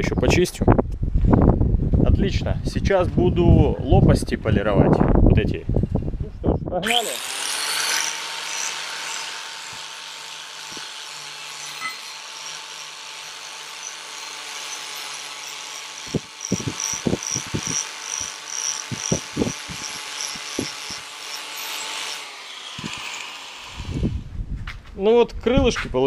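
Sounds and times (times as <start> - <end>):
angle grinder whining: 6.8 - 24.3.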